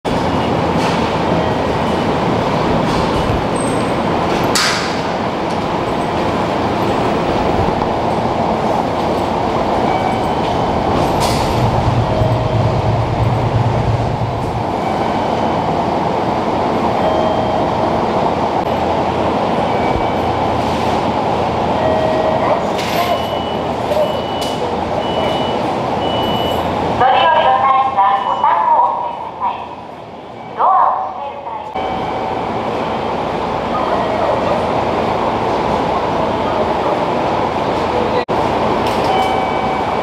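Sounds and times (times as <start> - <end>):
train rumbling: 0.1 - 30.5
deep hum: 9.6 - 15.4.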